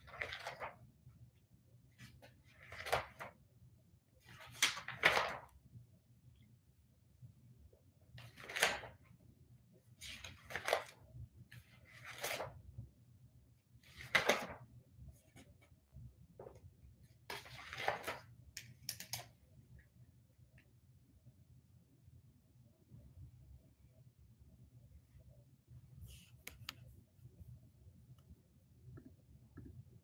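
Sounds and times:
paper pages rustling: 0:00.0 - 0:00.8, 0:02.0 - 0:03.4, 0:04.2 - 0:05.6, 0:08.2 - 0:09.0, 0:10.0 - 0:11.0, 0:11.6 - 0:12.6, 0:13.8 - 0:14.6, 0:17.2 - 0:18.3.

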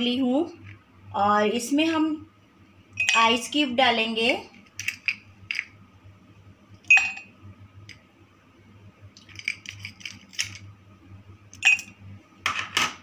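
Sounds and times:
ice cubes clinking against glass: 0:11.6 - 0:12.0.

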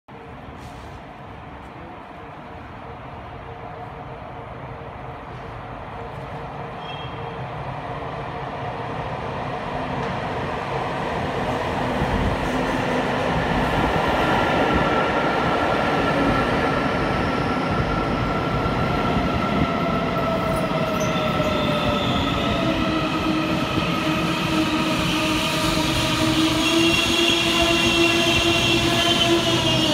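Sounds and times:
train rumbling on rails: 0:00.1 - 0:29.9
train brakes squealing: 0:06.7 - 0:07.4, 0:20.5 - 0:23.2, 0:24.3 - 0:29.9.

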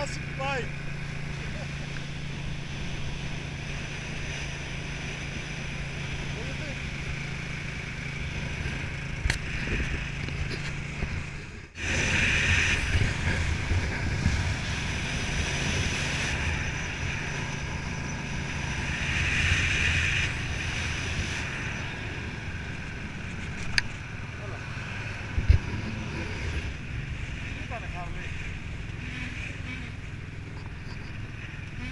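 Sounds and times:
motorcycle engine rumble: 0:00.0 - 0:31.9
wind rushing over microphone: 0:06.9 - 0:29.1.

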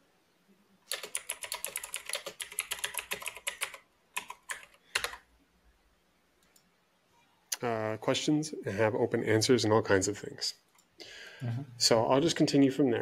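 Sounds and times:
computer keyboard typing: 0:00.9 - 0:05.3.

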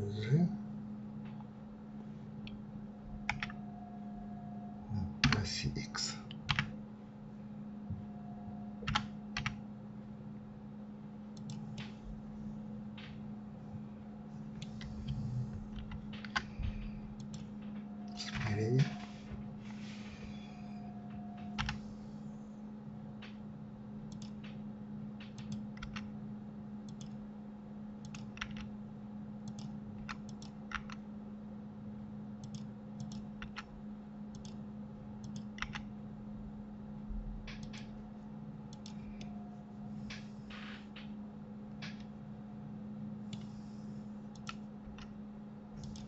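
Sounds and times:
steady low hum: 0:00.0 - 0:46.0
keyboard and mouse clicks: 0:03.2 - 0:03.6, 0:08.8 - 0:09.6, 0:11.3 - 0:12.0, 0:14.5 - 0:19.0, 0:21.1 - 0:21.8, 0:24.1 - 0:24.6, 0:25.2 - 0:26.1, 0:26.8 - 0:27.2, 0:28.0 - 0:28.7, 0:29.4 - 0:31.0, 0:32.4 - 0:33.7, 0:34.3 - 0:34.6, 0:35.2 - 0:35.9, 0:37.4 - 0:38.0, 0:38.7 - 0:39.4, 0:41.7 - 0:42.2, 0:44.3 - 0:45.2, 0:45.8 - 0:46.0.

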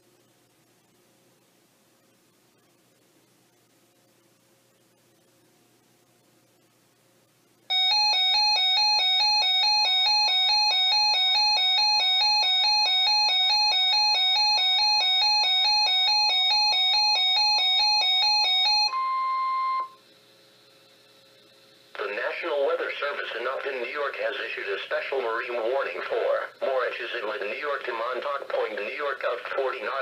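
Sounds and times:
two-pitch beeping alarm: 0:07.7 - 0:20.0
steady radio alert tone: 0:18.3 - 0:20.0, 0:21.9 - 0:30.0.

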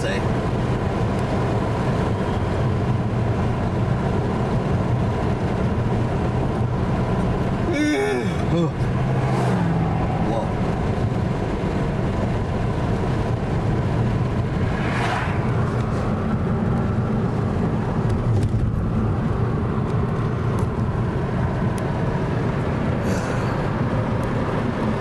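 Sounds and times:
car cabin road noise: 0:00.0 - 0:25.0
brief whoosh: 0:14.5 - 0:16.1.

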